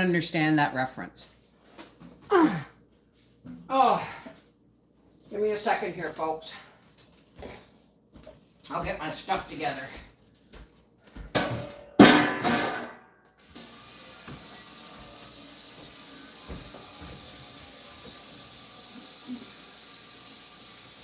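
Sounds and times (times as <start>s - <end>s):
kitchen tap running: 13.4s - 21.0s.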